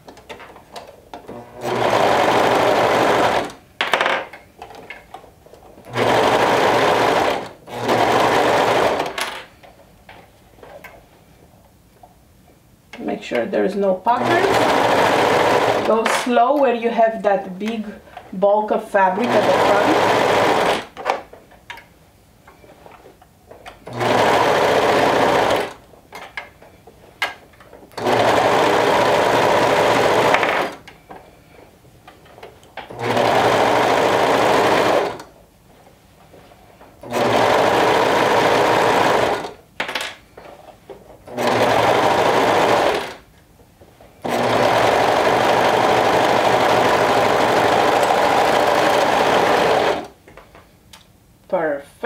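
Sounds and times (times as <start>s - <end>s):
overlock sewing machine stitching: 1.2s - 3.6s, 5.9s - 9.5s, 14.1s - 16.3s, 19.0s - 21.0s, 23.8s - 25.8s, 27.9s - 30.8s, 32.9s - 35.3s, 37.0s - 39.6s, 41.2s - 43.2s, 44.2s - 50.2s.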